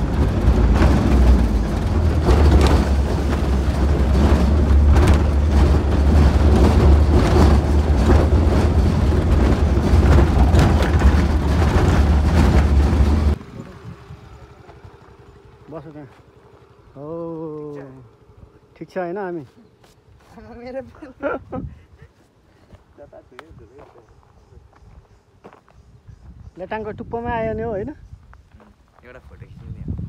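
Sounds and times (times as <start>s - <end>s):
knocks and rattles from jolting: 0.0s - 13.4s
vehicle rumble on dirt road: 0.0s - 30.0s.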